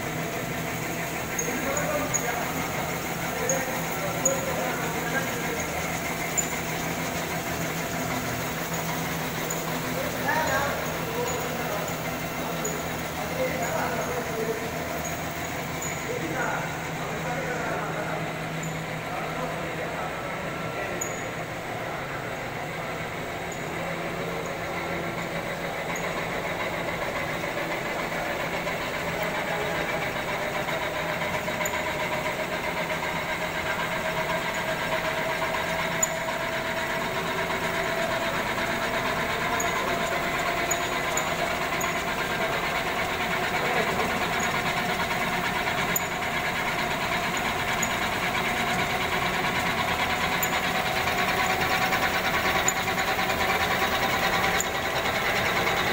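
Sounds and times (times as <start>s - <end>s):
machine humming with whine: 0.0s - 55.9s.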